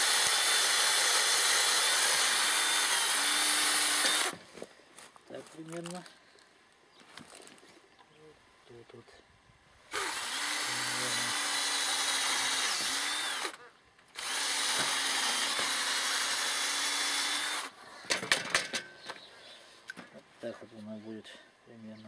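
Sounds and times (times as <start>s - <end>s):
electric drill drilling: 0.0s - 4.4s, 9.9s - 13.6s, 14.2s - 17.7s.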